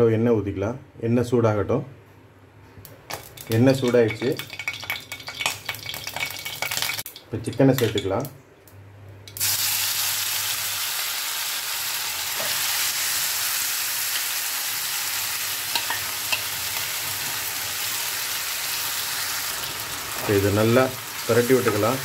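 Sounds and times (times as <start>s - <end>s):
chicken sizzling in oil: 4.4s - 7.2s, 9.4s - 22.0s.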